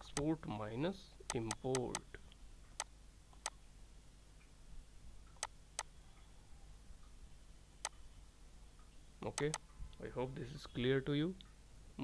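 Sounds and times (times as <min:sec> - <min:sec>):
faint sharp clicks: 0:00.1 - 0:00.3, 0:08.8 - 0:10.0.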